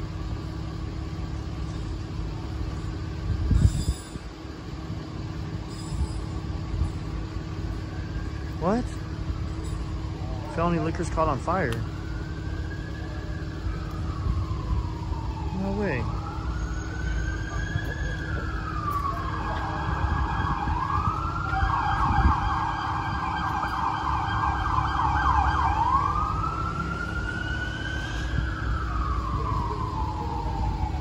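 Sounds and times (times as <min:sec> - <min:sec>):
low traffic rumble: 0:00.0 - 0:31.0
emergency siren wailing and yelping: 0:07.6 - 0:31.0.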